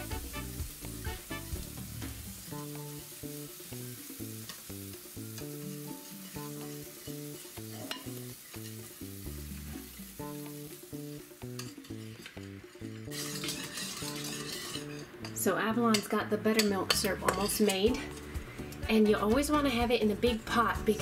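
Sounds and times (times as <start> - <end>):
batter sizzling in waffle iron: 0.0 - 15.3
music with plucked melody: 0.0 - 21.0.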